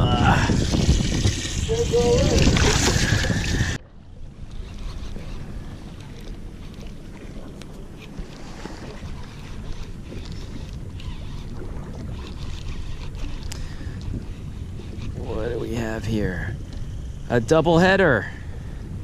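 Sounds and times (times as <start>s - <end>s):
wind buffeting microphone: 0.0s - 19.0s
faint ticks: 12.4s - 15.2s.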